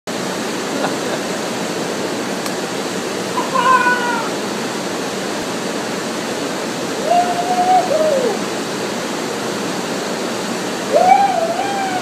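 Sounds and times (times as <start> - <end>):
waterfall rushing: 0.1 - 12.0.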